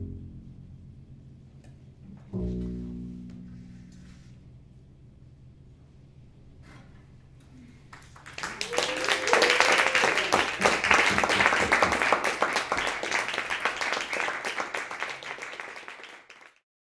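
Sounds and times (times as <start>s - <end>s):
audience applauding: 7.9s - 16.6s.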